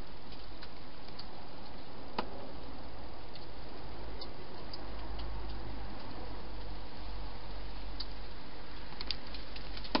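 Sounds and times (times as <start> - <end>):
steady hiss and hum: 0.0 - 10.0
hedgehog eating clicks and crunches: 8.8 - 10.0.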